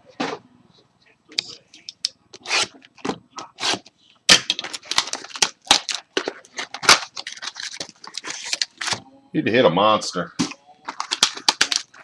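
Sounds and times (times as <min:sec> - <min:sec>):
packaging crinkling and tearing: 0:04.4 - 0:09.0, 0:10.4 - 0:12.0.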